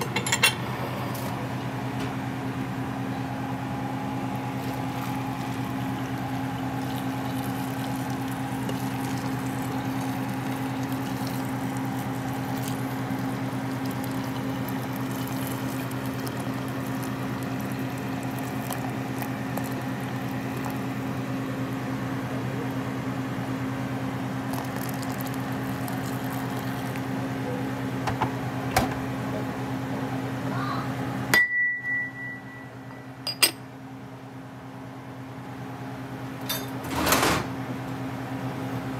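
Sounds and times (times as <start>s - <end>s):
tap water running into pot: 4.4s - 21.2s, 24.5s - 27.1s.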